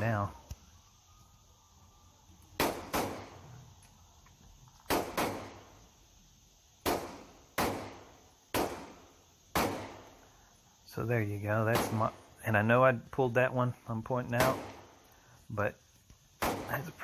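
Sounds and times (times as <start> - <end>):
gunshots echoing indoors: 2.6 - 3.5, 4.9 - 5.6, 6.8 - 8.0, 9.6 - 10.1.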